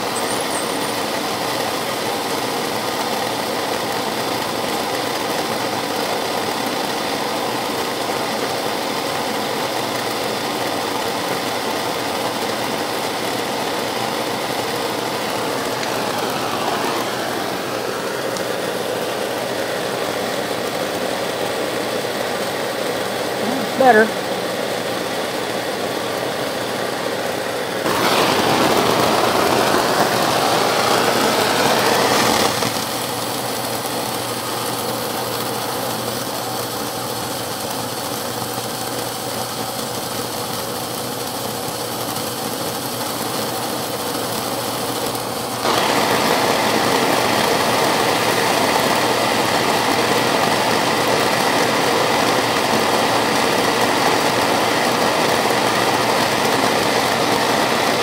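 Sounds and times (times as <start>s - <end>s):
metal lathe running: 0.0s - 58.0s
loud rushing noise: 27.8s - 33.1s.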